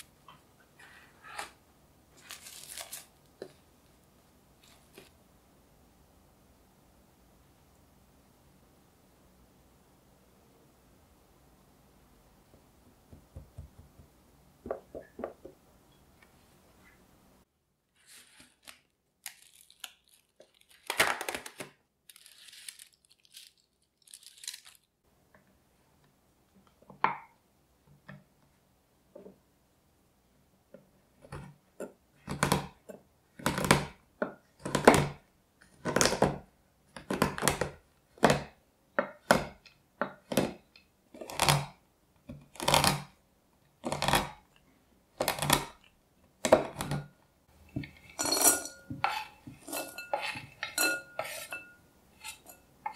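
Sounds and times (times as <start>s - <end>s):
knife chopping chocolate: 33.4s - 35.2s, 35.8s - 43.1s, 45.2s - 45.8s.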